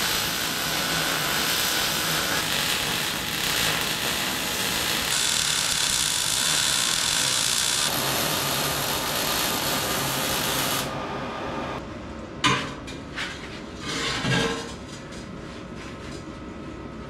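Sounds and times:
angle grinder on steel: 0.0s - 10.9s.

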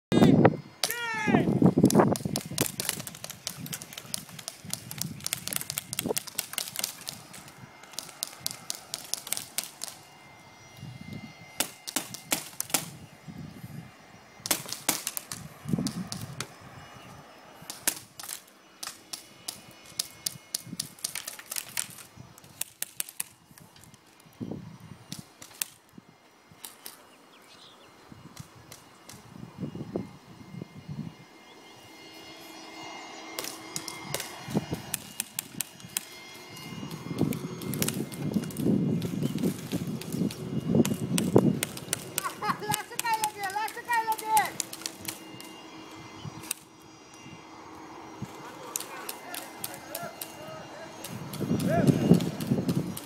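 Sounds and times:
airsoft guns firing: 1.9s - 10.0s, 11.6s - 12.9s, 14.4s - 16.2s.

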